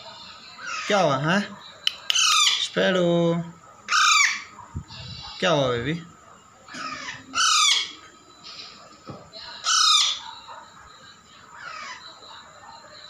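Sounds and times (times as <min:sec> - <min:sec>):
parakeet harsh calls: 0:00.4 - 0:01.3, 0:02.1 - 0:03.0, 0:03.9 - 0:05.6, 0:06.7 - 0:08.8, 0:09.5 - 0:10.5, 0:11.5 - 0:12.2.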